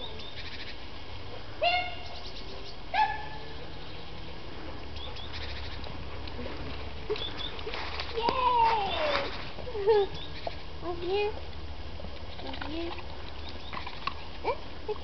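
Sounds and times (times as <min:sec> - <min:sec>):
puppy yelping: 0:02.9 - 0:03.5.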